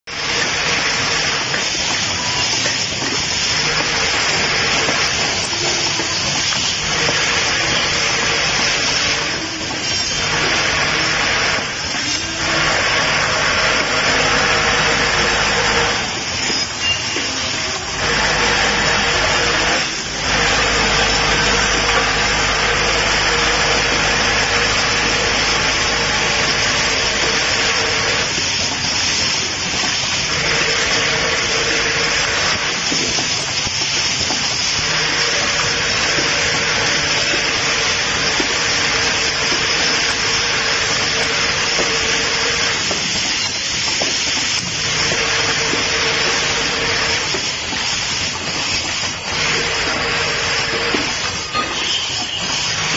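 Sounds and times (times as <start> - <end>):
assembly machine running: 0.1 - 52.9
machine hum: 0.1 - 52.9.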